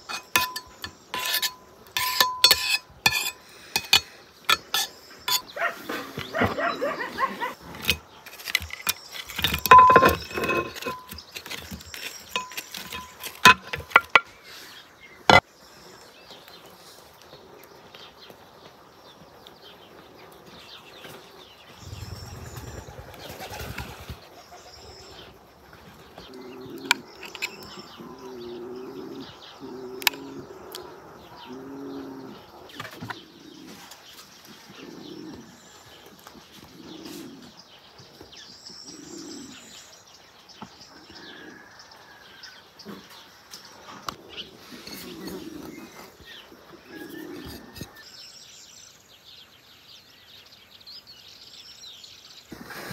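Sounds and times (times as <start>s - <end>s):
birds cooing: 0.0s - 15.4s, 21.7s - 39.9s, 40.9s - 48.1s
wooden spoon knocking ceramic dish: 0.1s - 5.4s, 7.8s - 14.3s.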